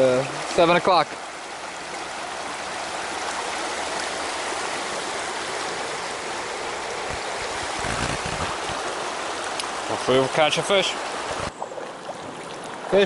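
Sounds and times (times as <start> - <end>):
stream rushing over rocks: 0.0 - 13.0
low bumps: 7.0 - 9.0.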